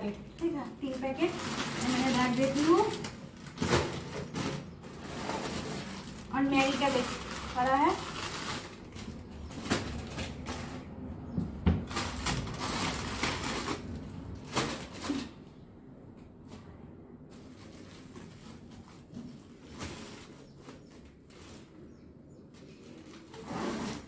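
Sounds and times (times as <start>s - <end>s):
packaging rustling: 0.3s - 10.9s, 11.8s - 15.4s.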